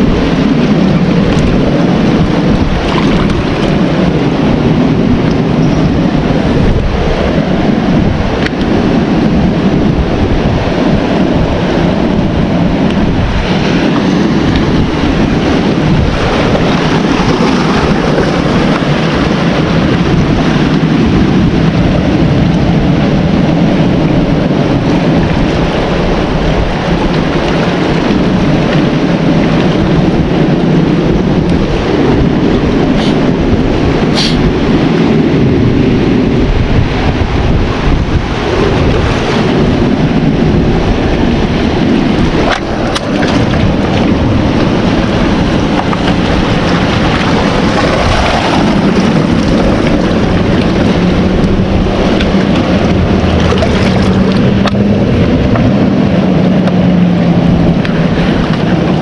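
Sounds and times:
surf breaking: 0.0 - 59.0
wind buffeting microphone: 0.0 - 59.0
sea lapping over rocks: 0.2 - 4.0, 12.8 - 20.4, 41.5 - 55.8.

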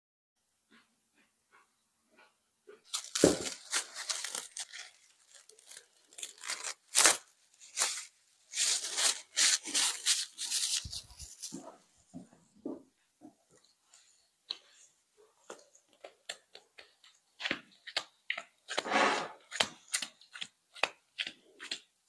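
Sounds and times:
cling film crinkling: 2.9 - 11.6
hand squelching sticky dough: 15.4 - 22.0.

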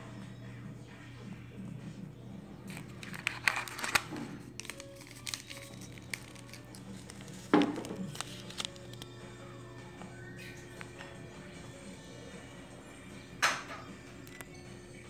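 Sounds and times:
plastic containers crinkling: 2.7 - 9.2.

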